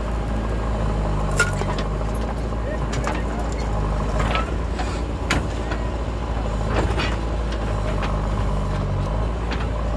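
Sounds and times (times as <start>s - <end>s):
diesel engine running: 0.0s - 9.9s.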